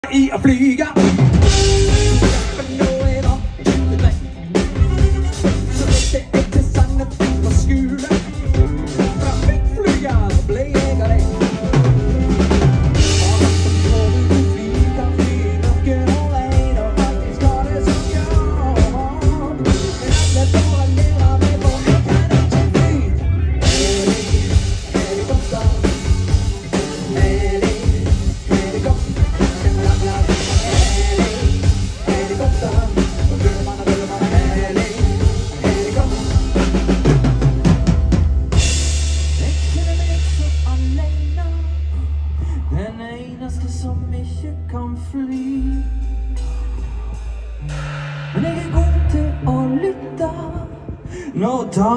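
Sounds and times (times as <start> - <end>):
live band music: 0.0 - 51.9
bass drum and snare hits: 1.0 - 7.8.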